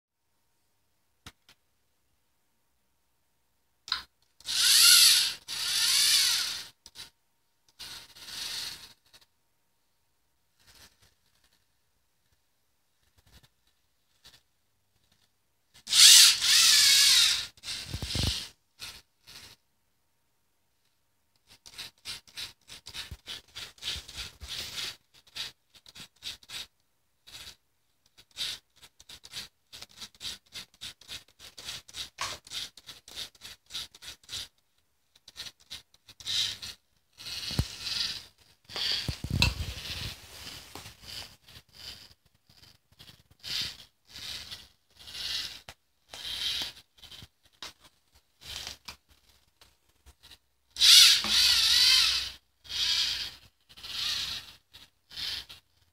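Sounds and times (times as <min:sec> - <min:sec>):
robot motors whirring: 0:04.4 - 0:06.8, 0:07.8 - 0:08.9, 0:15.9 - 0:19.5, 0:21.7 - 0:26.7, 0:35.3 - 0:47.6, 0:50.2 - 0:55.6.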